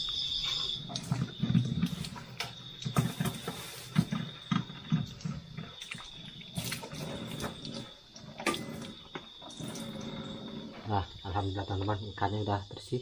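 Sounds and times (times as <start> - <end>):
knocks and splashes: 1.0 - 9.9.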